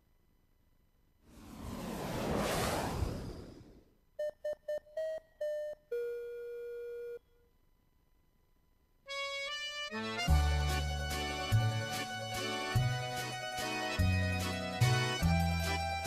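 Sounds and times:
whoosh: 1.3 - 3.9.

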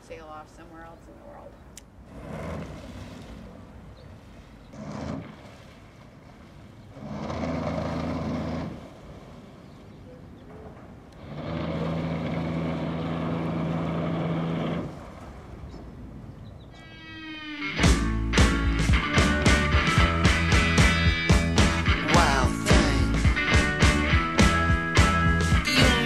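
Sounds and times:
bow thruster humming: 4.6 - 6.1, 6.9 - 9.1, 10.6 - 15.5
low drone: 11.1 - 16.0, 16.8 - 26.0.

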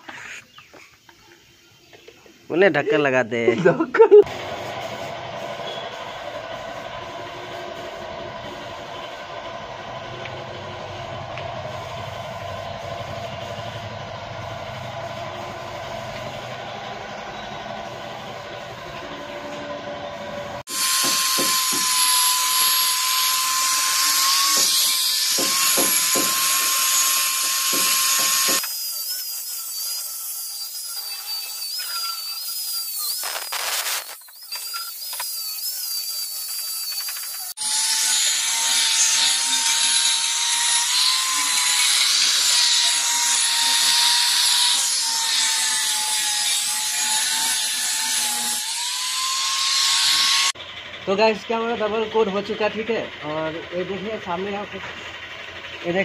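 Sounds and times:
angle grinder grinding metal: 14.7 - 50.6.

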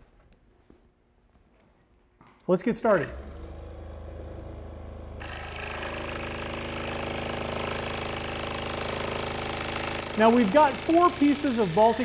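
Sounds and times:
scroll saw cutting plywood: 5.2 - 12.0.

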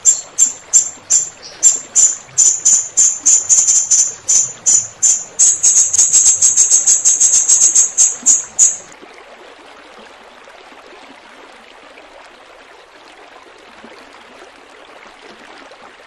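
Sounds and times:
parrot calling: 0.0 - 8.9
faint flowing water: 0.0 - 16.0.

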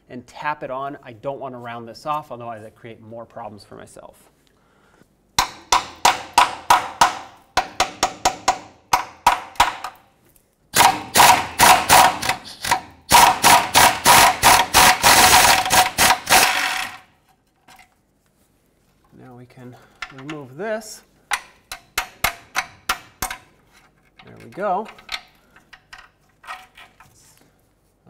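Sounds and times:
hammer striking metal socket: 21.3 - 23.5.

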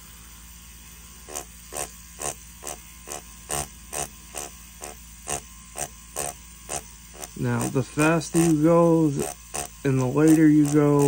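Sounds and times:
rotary tattoo pen humming: 0.0 - 11.0
short buzzes of pen striking paper: 1.3 - 11.0.

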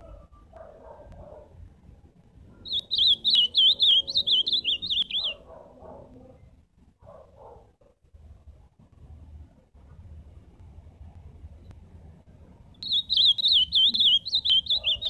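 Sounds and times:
bird singing warbling whistles: 2.6 - 5.4, 12.8 - 15.0.

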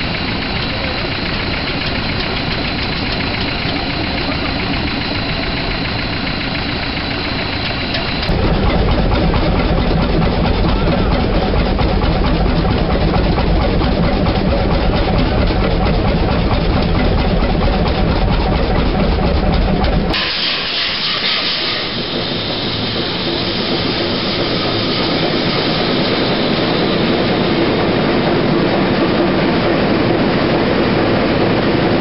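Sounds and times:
diesel engine running: 0.0 - 32.0
low hum: 0.0 - 32.0
loud hiss: 20.2 - 24.8.

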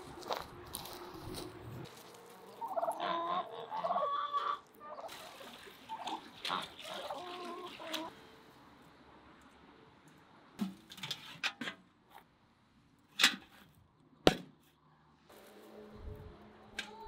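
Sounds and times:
turkeys gobbling: 2.5 - 5.1
poultry calls: 2.6 - 5.1.

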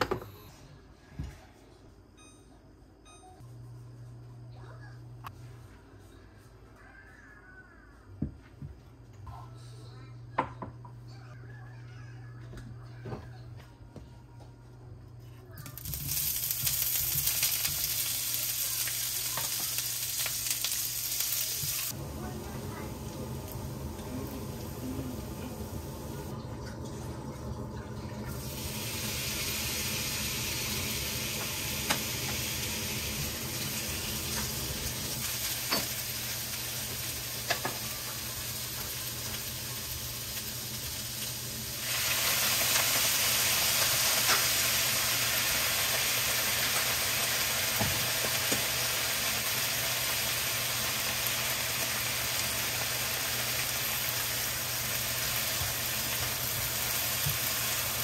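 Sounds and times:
onion sizzling in a frying pan: 15.6 - 58.0.

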